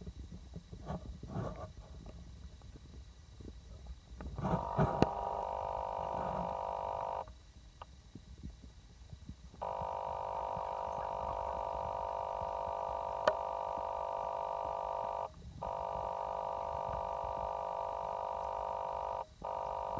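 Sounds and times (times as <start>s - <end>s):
sharp click: 4.6s - 5.2s.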